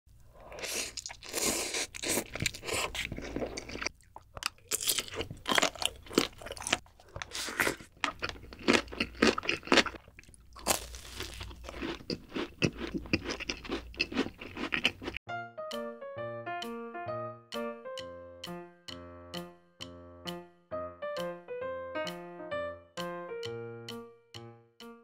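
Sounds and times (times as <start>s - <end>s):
person slurping noodles: 0.4s - 3.7s, 7.3s - 7.9s
crisp chewing crunches: 0.5s - 15.2s.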